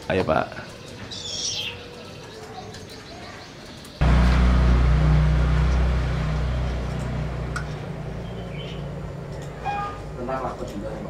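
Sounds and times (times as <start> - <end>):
motor hum with rushing noise: 4.0 - 9.2.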